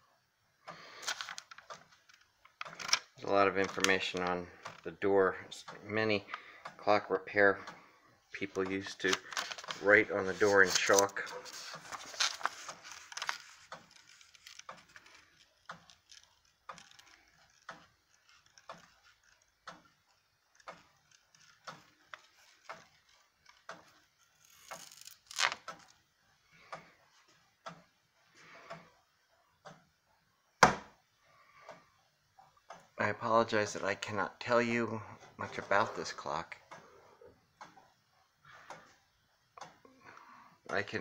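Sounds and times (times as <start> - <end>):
clock ticking: 15.6 - 24.0, 26.6 - 28.0, 28.6 - 30.0.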